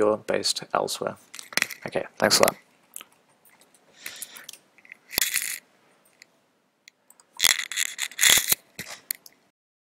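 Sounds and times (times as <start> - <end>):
clicking and clattering of small objects: 1.3 - 1.9, 3.0 - 6.3, 7.4 - 9.4
sharp clicks and rattling: 3.5 - 6.3, 7.1 - 9.3.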